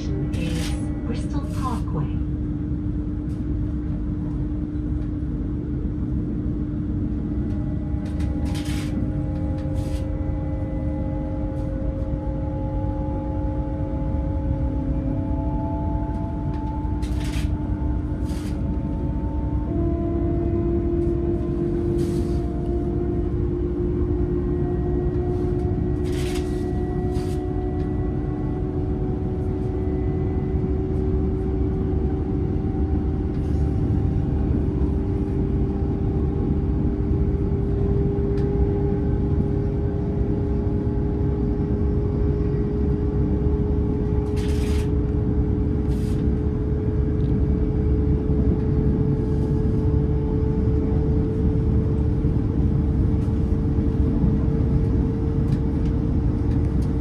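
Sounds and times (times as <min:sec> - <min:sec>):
train rumble and motor whine: 0:00.0 - 0:57.0.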